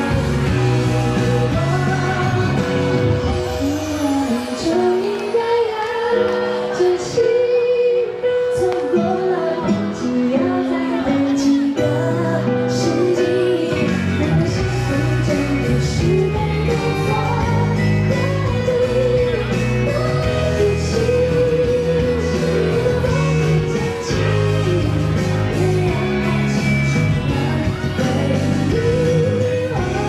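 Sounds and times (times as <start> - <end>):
live pop band: 0.0 - 30.0
woman singing slow melody: 0.0 - 30.0.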